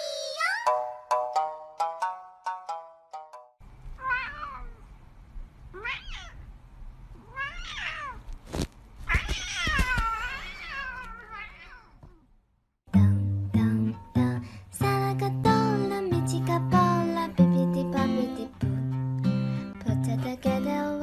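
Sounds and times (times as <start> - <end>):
cat meowing: 4.0 - 4.9, 5.7 - 6.5, 7.2 - 8.3, 9.1 - 12.3.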